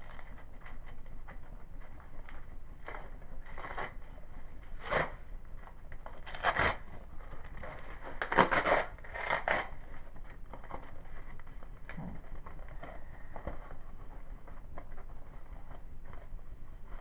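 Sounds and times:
package being cut and torn: 4.8s - 5.2s, 6.2s - 6.8s, 8.2s - 9.8s.

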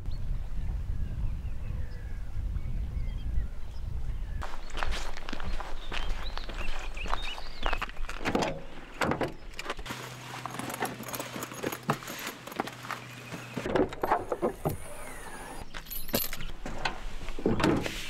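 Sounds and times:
truck door opening: 8.2s - 18.0s.

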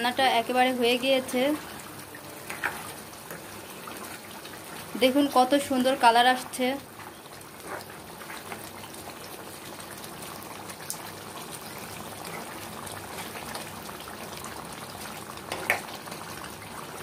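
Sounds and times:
curry simmering and bubbling: 0.0s - 17.0s
ladle stirring: 2.4s - 4.8s.

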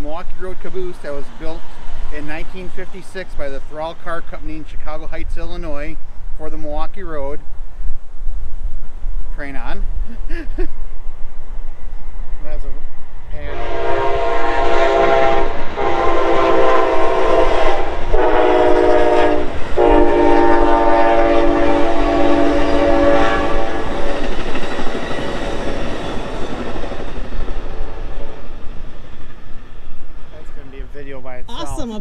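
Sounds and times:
train running on rails: 0.0s - 32.0s
train air horn blasts: 13.3s - 24.2s.

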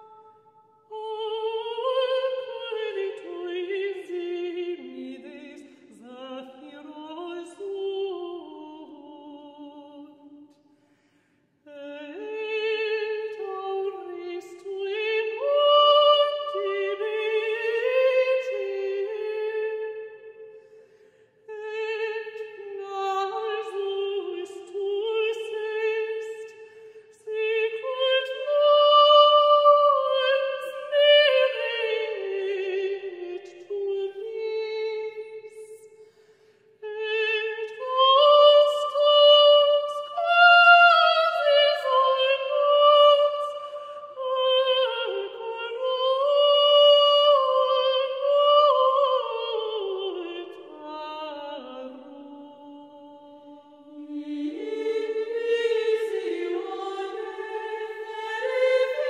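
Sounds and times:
operatic singing high voice: 36.8s - 59.0s.

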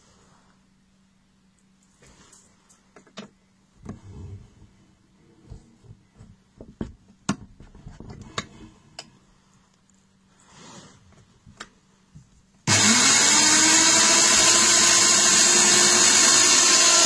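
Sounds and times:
low mechanical whirs: 0.4s - 6.9s.

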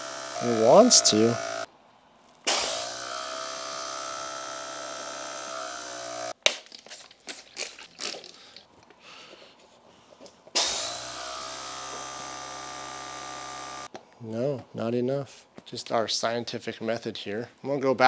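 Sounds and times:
air compressor buzzing: 0.0s - 1.7s, 2.5s - 6.3s, 10.6s - 13.9s.

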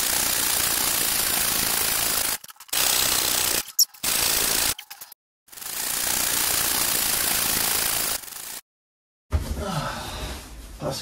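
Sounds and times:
electric air pump whirring: 0.0s - 8.6s.

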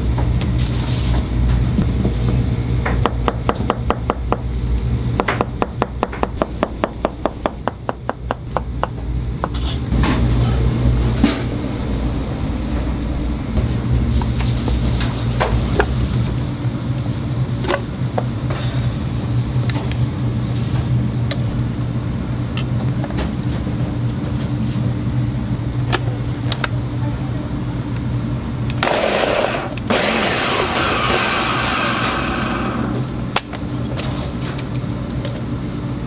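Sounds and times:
low kitchen hum: 0.0s - 36.0s
blender running loudly: 28.8s - 33.0s.

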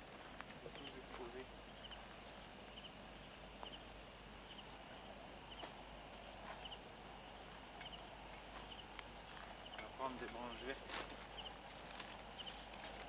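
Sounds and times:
campfire crackling and popping: 3.4s - 13.0s.

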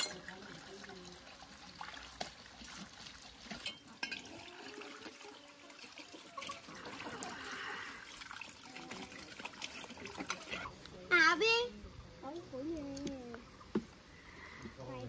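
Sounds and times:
metal bowl clinks: 0.0s - 0.3s
water splashing from hose: 0.0s - 14.0s.

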